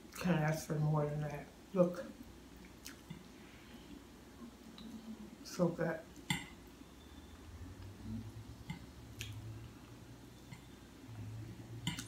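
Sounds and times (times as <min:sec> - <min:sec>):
low steady hum: 0:00.0 - 0:12.0
person chewing food: 0:02.6 - 0:04.0.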